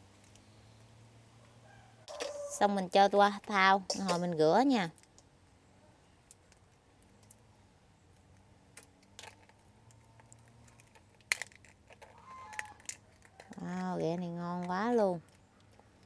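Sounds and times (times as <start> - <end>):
crab shells clicking and tapping: 3.3 - 5.3, 8.1 - 16.0.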